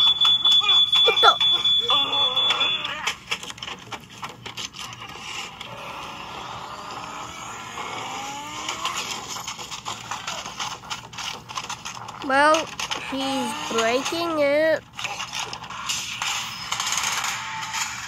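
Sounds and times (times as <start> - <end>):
car engine revving: 5.7 - 9.5.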